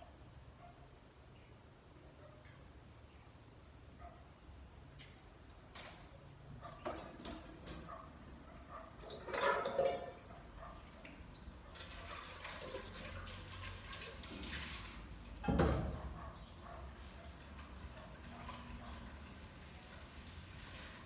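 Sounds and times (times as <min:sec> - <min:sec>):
dishes being washed: 0:06.8 - 0:21.0
water splashing in sink: 0:08.9 - 0:16.3.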